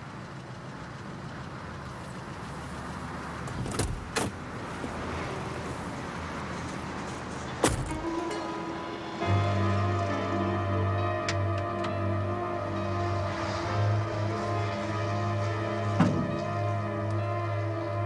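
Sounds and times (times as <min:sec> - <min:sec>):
car door slamming shut: 0:07.6 - 0:08.2, 0:16.0 - 0:16.4.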